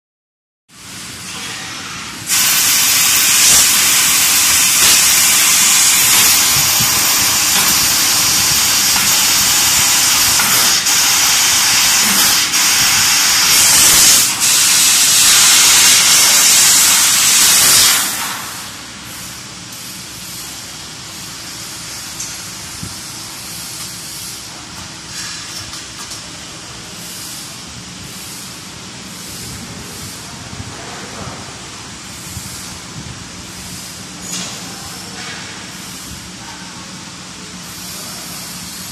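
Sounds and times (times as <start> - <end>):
quiet steady machine noise: 0.7 - 38.9
laser cutter gas jet hissing: 0.8 - 25.4, 26.8 - 30.6, 31.6 - 36.4, 37.5 - 38.9.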